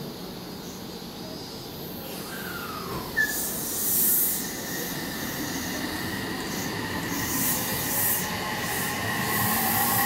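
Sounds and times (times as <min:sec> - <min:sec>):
air brakes hissing: 0:02.1 - 0:05.9
electric train motor whine: 0:04.3 - 0:10.0.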